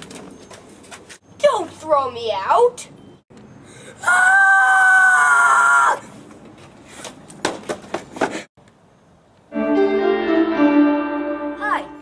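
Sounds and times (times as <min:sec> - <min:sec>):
boy screaming: 0:04.0 - 0:06.0.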